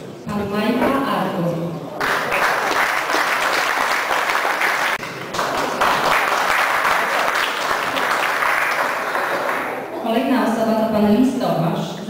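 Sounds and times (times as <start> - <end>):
audience applauding: 2.0 - 10.0.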